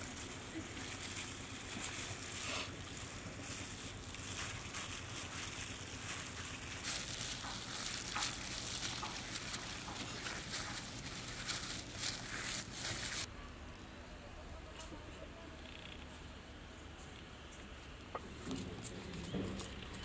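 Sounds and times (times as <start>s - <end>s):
gloved hands crinkling: 0.0s - 13.3s
outdoor noise: 0.0s - 20.0s.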